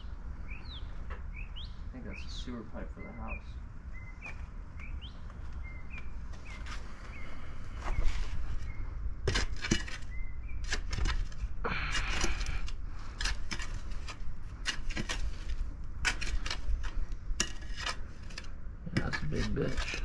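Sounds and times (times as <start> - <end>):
faint bird chirp: 0.0 - 9.1, 9.9 - 10.7
shovel scraping gravelly soil: 6.4 - 20.0.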